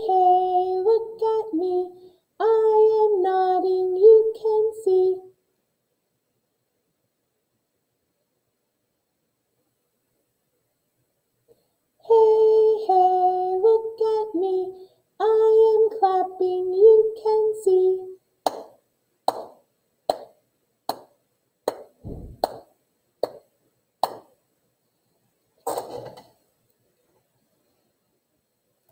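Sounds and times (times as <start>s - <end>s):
woman singing unaccompanied: 0.0s - 5.3s, 12.0s - 18.2s
hands clapping: 18.4s - 24.3s.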